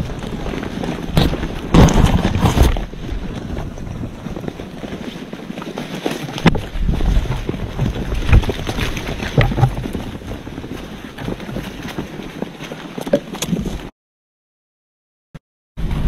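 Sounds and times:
wind buffeting microphone: 0:00.0 - 0:12.6.

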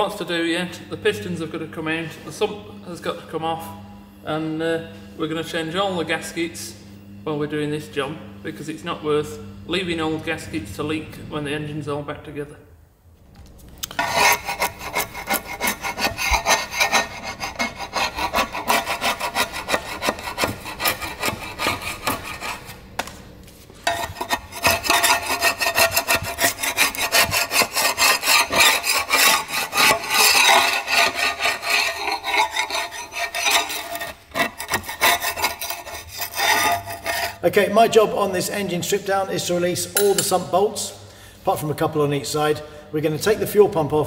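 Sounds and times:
metal scraper scraping gasket: 0:13.8 - 0:22.8, 0:23.8 - 0:37.4.

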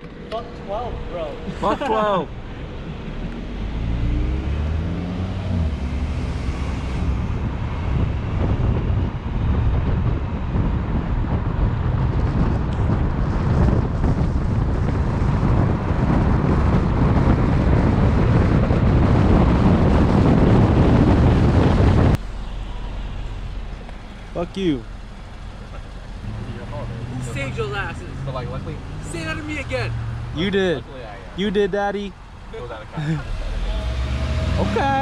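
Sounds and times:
car engine accelerating: 0:00.0 - 0:35.0
road noise rumble: 0:00.0 - 0:35.0
wind buffeting microphone: 0:02.3 - 0:29.0.

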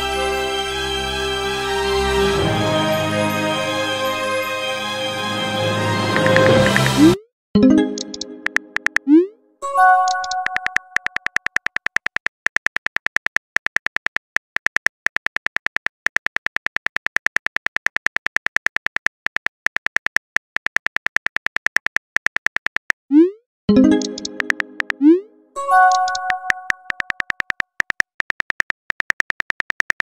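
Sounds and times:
phone keyboard taps: 0:08.0 - 0:09.1, 0:10.2 - 0:23.0, 0:25.9 - 0:30.0.

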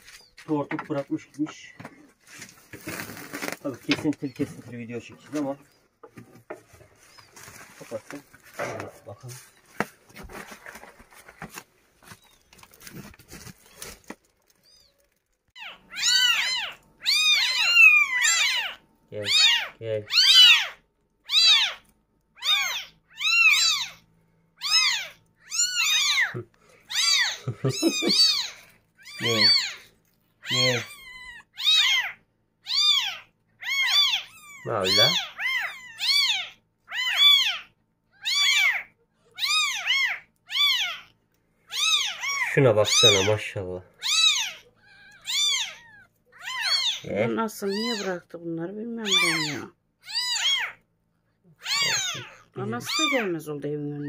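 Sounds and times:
knocks and rustling: 0:00.0 - 0:14.5
kittens mewing: 0:13.6 - 0:48.3, 0:48.9 - 0:54.0
kitten mewing loudly: 0:24.6 - 0:29.8.

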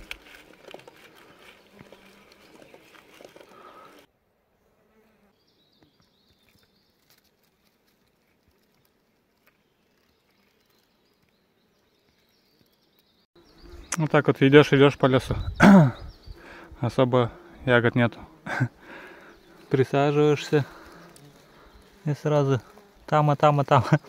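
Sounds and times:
rustling through undergrowth: 0:00.0 - 0:04.1, 0:05.6 - 0:13.9, 0:18.2 - 0:24.0
faint high insect buzz: 0:00.0 - 0:12.7, 0:16.2 - 0:24.0.

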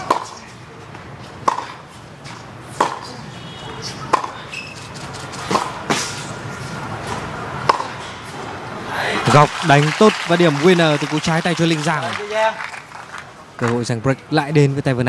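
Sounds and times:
tennis ball struck by rackets: 0:00.0 - 0:00.4, 0:01.4 - 0:01.8, 0:02.7 - 0:03.2, 0:03.9 - 0:04.4, 0:05.4 - 0:06.2, 0:07.0 - 0:08.1.

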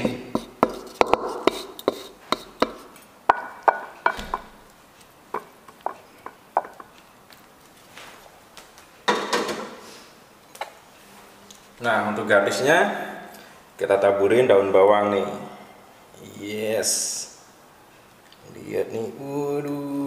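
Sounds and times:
wooden spatula tapping a wok: 0:00.0 - 0:04.5, 0:05.3 - 0:06.9.

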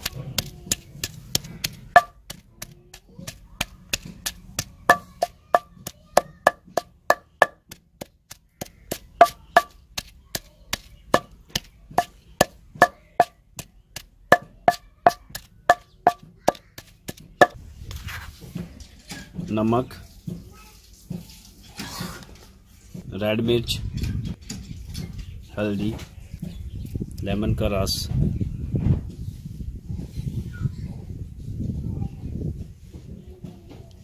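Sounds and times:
pestle pounding in stone mortar: 0:00.0 - 0:17.6.

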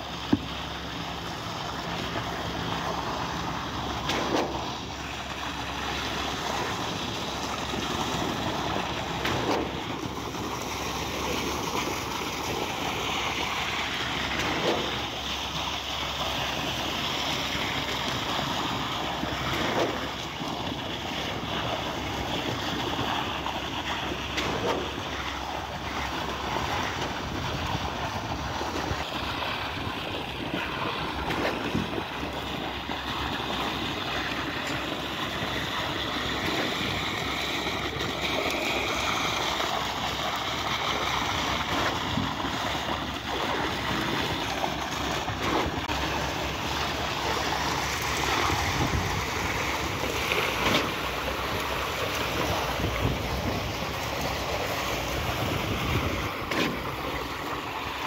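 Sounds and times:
concrete pump running: 0:00.0 - 0:58.0.

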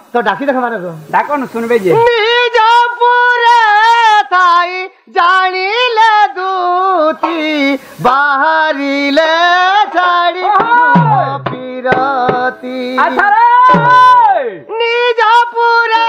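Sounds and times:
person singing folk song: 0:01.9 - 0:16.0
drum strokes: 0:10.4 - 0:14.2
lower-pitched part: 0:10.9 - 0:11.8.

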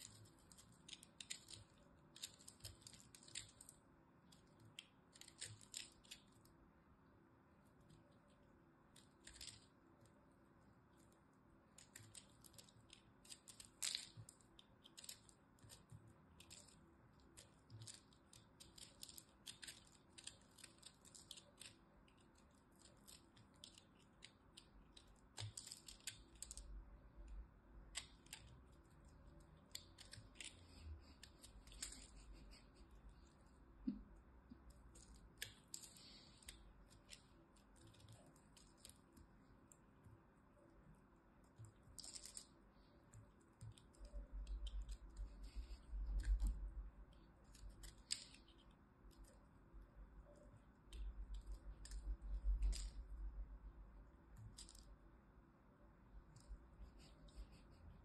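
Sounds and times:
soap crackling and snapping: 0:11.8 - 0:28.7, 0:41.6 - 0:42.9, 0:43.6 - 0:49.3, 0:50.9 - 0:53.2.

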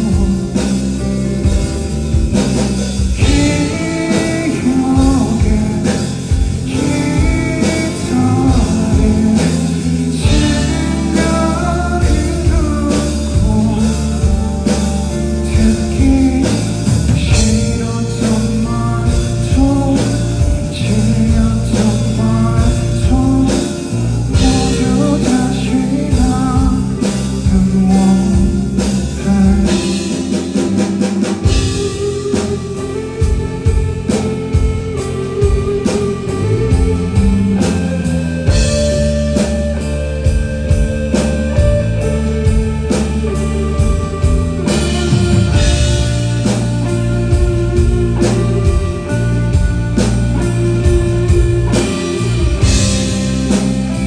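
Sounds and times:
man singing: 0:00.0 - 0:01.9, 0:03.1 - 0:34.2
drum kit: 0:00.0 - 0:54.0
electric guitar: 0:00.0 - 0:54.0.

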